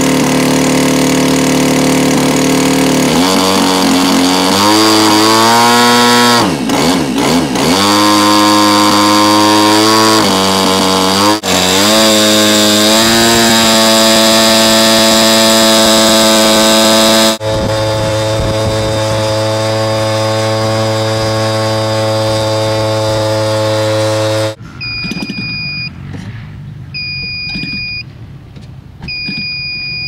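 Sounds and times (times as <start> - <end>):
gas engine running: 0.0 - 24.6
high electronic beep: 24.8 - 26.0, 26.9 - 28.1, 29.0 - 30.0.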